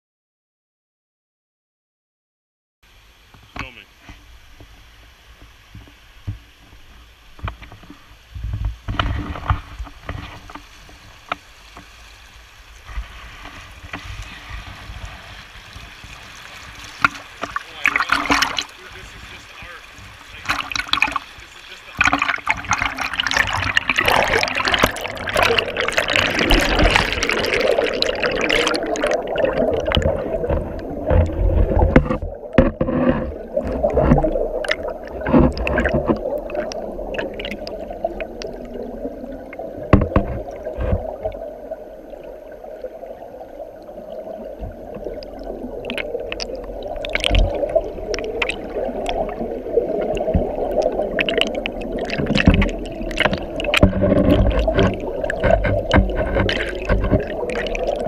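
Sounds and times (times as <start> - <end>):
muffled underwater rush: 3.0 - 58.0
underwater clicks and knocks: 5.4 - 11.9, 16.8 - 19.3, 20.0 - 21.2, 22.0 - 41.5, 44.5 - 58.0.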